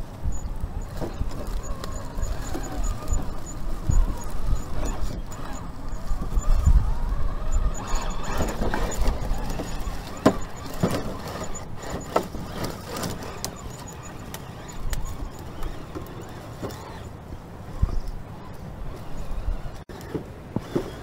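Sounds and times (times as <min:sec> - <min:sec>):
toy car motor whining: 0:00.4 - 0:17.2.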